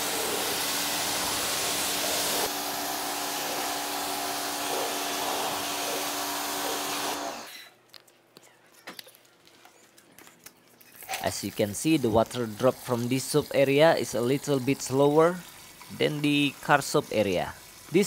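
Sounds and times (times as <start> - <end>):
water jet spraying on car: 0.0 - 7.2
pressure washer motor humming: 0.0 - 7.5
faint water drips: 10.4 - 18.0.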